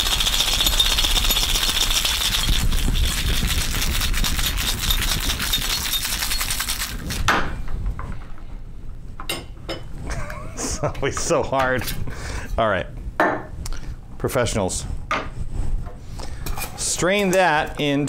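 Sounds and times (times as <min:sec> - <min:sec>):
ice rattling in cocktail shaker: 0:00.0 - 0:07.3.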